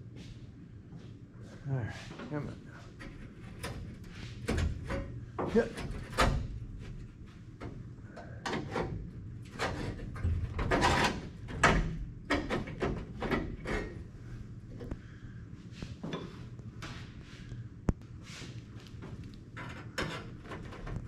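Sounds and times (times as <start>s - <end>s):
sheet metal scraping and creaking: 8.4s - 14.1s, 19.6s - 21.0s.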